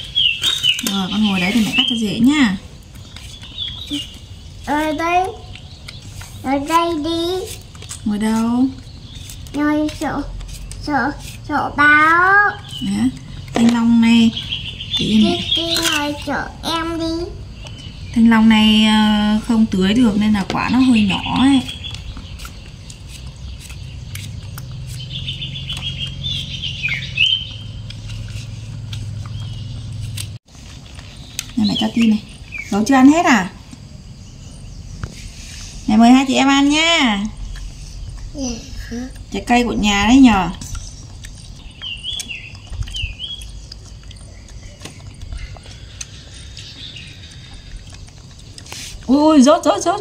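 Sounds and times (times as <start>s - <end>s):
high-pitched chirping calls: 0.0s - 50.0s
eating clicks and smacks: 5.0s - 8.1s, 21.3s - 32.3s, 40.5s - 49.3s
low rumble: 33.5s - 48.6s.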